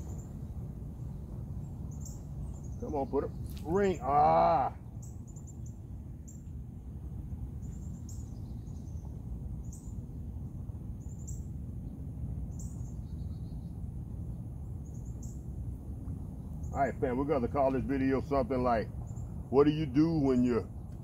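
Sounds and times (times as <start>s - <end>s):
bird chirping and trilling: 0.0s - 6.6s, 7.6s - 10.1s, 11.0s - 13.8s
low background rumble: 0.0s - 21.0s.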